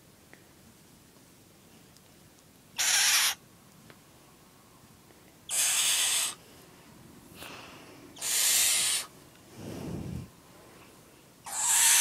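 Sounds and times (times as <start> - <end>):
owl chick hissing: 2.8 - 3.4, 5.5 - 6.4, 7.4 - 10.3, 11.4 - 12.0.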